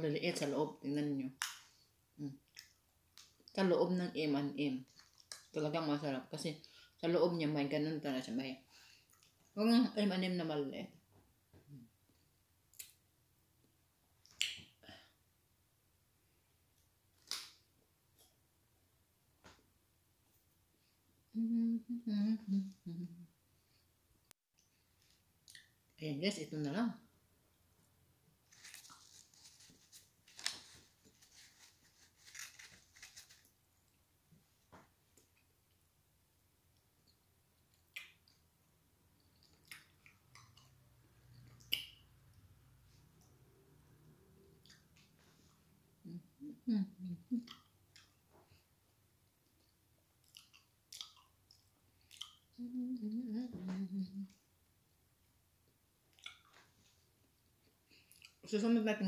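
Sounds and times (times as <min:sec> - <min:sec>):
chewing noises: 0:04.9 - 0:05.6, 0:39.2 - 0:42.0, 0:49.5 - 0:52.5, 0:56.1 - 0:56.7, 0:57.9 - 0:58.5
closed-mouth humming: 0:21.3 - 0:23.3, 0:52.6 - 0:54.4
rustle of sweets on tray: 0:28.5 - 0:33.6
wet mouth clicks: 0:37.7 - 0:38.4, 0:39.3 - 0:42.0, 0:47.4 - 0:48.2, 0:50.2 - 0:52.6, 0:56.1 - 0:56.6.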